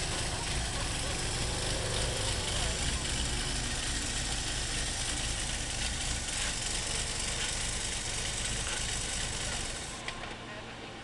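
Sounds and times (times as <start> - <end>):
van engine running at low revs: 0.0 - 11.0.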